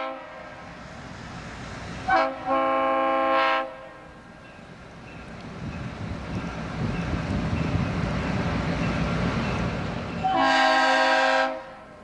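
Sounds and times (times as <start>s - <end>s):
locomotive air horn blasts: 0.0s - 0.6s, 2.1s - 4.0s, 10.2s - 12.0s.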